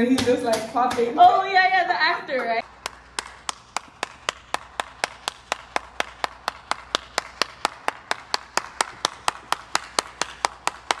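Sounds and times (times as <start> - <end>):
hands clapping: 2.4 - 11.0.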